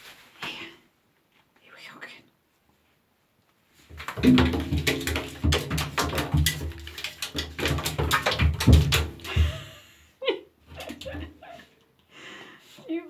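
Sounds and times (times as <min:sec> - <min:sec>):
cat paws thudding on tub: 0:03.9 - 0:09.6
foil ball clattering in bathtub: 0:03.9 - 0:09.7.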